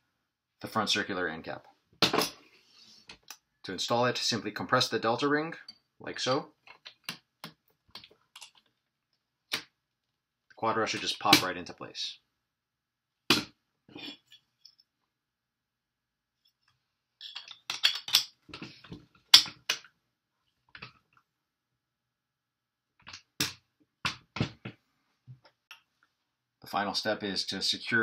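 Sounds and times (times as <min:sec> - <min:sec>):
plastic parts clicking and knocking: 0:06.6 - 0:08.8, 0:17.2 - 0:20.0, 0:23.0 - 0:25.8.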